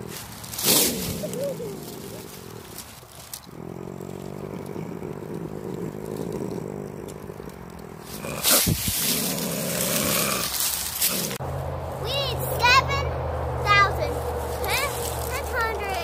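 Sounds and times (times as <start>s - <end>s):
opossum growling low: 0.0s - 11.4s.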